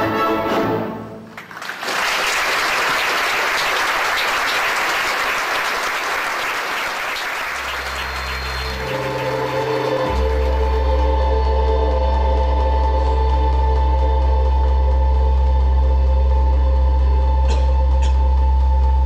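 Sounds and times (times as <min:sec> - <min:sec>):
orchestral ballet music: 0:00.0 - 0:01.4, 0:07.7 - 0:19.0
audience applauding: 0:01.3 - 0:10.8.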